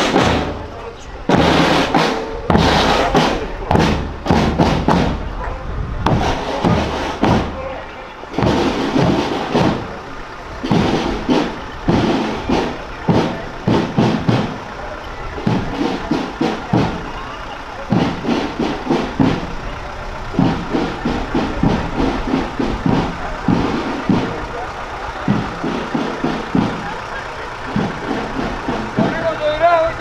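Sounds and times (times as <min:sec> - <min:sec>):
music: 0:00.0 - 0:05.2
crowd voices: 0:00.0 - 0:30.0
jeep engine idling: 0:00.0 - 0:30.0.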